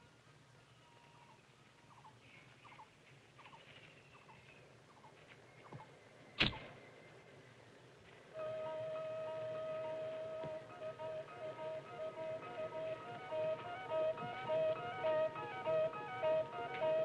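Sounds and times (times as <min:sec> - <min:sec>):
faint bird chirps: 0:00.0 - 0:07.9.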